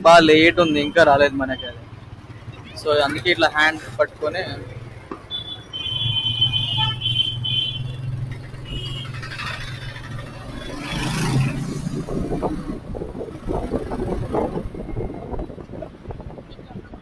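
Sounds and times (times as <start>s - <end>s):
motorcycle engine humming: 0.0s - 16.2s
road and traffic noise: 0.0s - 17.0s
wind rumble on microphone: 11.3s - 17.0s.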